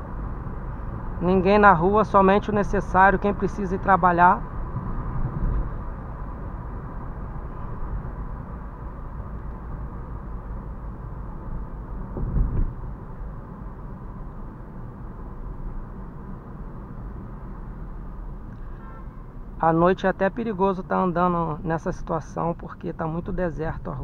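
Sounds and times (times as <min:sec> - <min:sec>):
car engine and road noise: 0:00.0 - 0:24.0
brief thump: 0:12.1 - 0:12.8.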